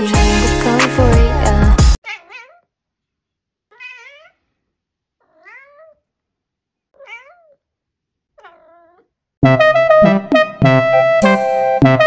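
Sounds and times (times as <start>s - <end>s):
cat meowing: 2.0s - 2.7s, 3.7s - 4.5s, 5.2s - 6.1s, 6.9s - 7.6s, 8.4s - 9.2s.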